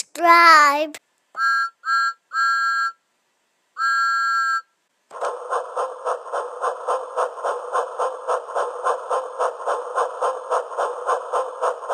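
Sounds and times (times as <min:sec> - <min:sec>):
steam locomotive chugging: 0:05.1 - 0:11.9.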